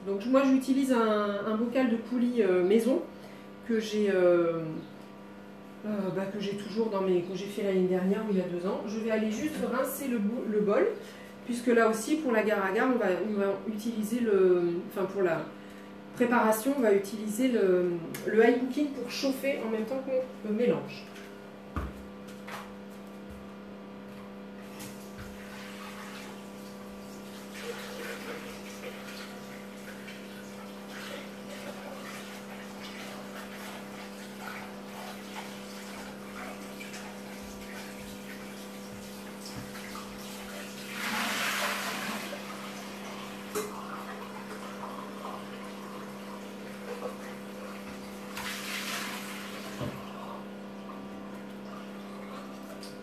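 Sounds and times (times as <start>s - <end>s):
tap water splashing in bowl: 24.8s - 25.5s, 36.8s - 40.6s, 43.5s - 45.4s, 46.8s - 50.0s.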